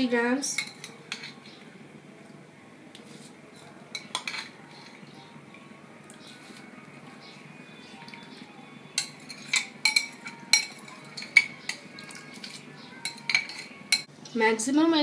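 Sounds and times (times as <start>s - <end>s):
spoon clinking against pan: 0.5s - 1.4s, 3.9s - 5.0s, 9.0s - 14.1s
metal spoon stirring rice: 0.5s - 1.6s, 9.0s - 14.1s.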